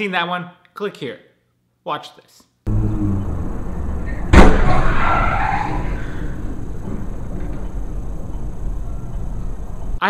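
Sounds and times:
vehicle noise: 0:02.7 - 0:10.0
car crash impact: 0:03.4 - 0:08.2.

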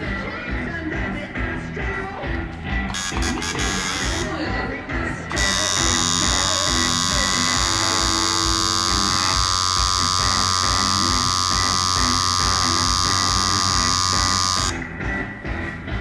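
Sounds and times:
tattoo machine buzzing: 0:02.9 - 0:04.4, 0:05.3 - 0:14.9.

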